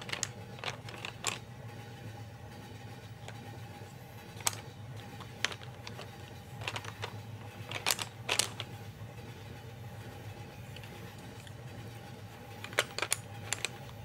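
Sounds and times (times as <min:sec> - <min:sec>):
pencils clicking against tin: 0:00.0 - 0:01.5, 0:04.3 - 0:08.7, 0:12.6 - 0:14.0
steady low hum: 0:00.0 - 0:14.0.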